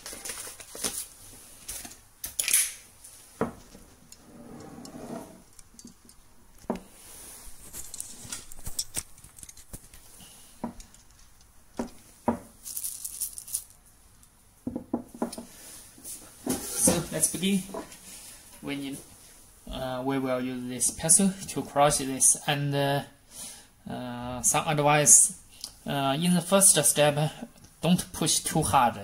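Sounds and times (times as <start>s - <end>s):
paper bag rustling: 0.0s - 2.0s, 12.6s - 13.8s
coffee beans clicking: 12.6s - 13.8s.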